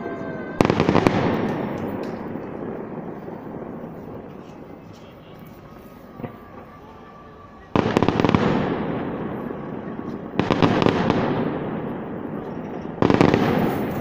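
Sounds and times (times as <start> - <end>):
firework shells bursting: 0.6 - 6.6, 10.2 - 14.0.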